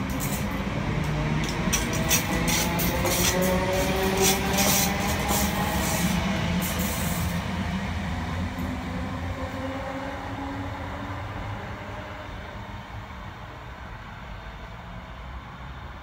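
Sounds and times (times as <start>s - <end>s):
train wheels clicking over rail joints: 0.0s - 7.5s
train motor whine: 0.0s - 8.9s.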